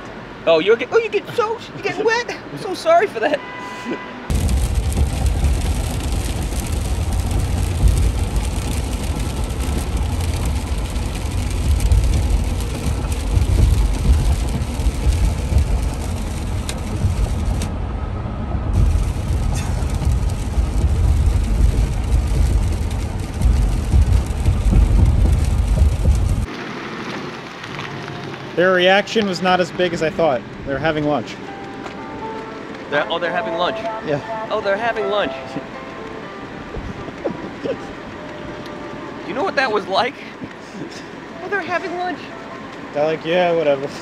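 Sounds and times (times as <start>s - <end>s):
low road rumble inside vehicle: 4.2s - 28.6s, 35.5s - 44.0s
tyres hissing on wet pavement: 4.3s - 17.8s, 18.7s - 44.0s.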